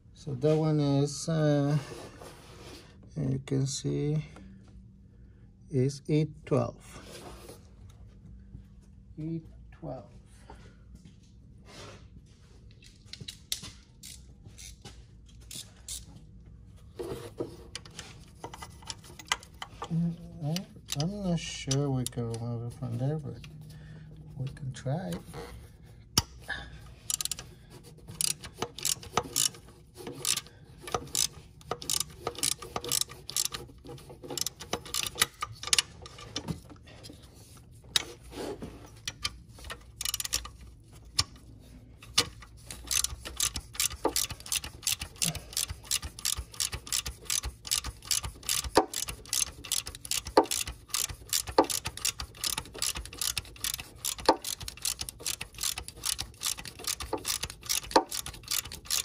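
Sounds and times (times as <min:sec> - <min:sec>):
socket ratchet clicking: 0:20.5 - 0:22.4, 0:27.1 - 0:27.5, 0:28.1 - 0:36.2, 0:39.0 - 0:41.4, 0:42.1 - 0:59.0.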